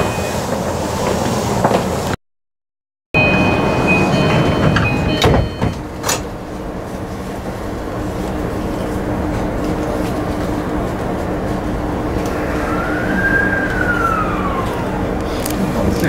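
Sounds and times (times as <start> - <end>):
electric train inverter whine: 3.2 - 16.0.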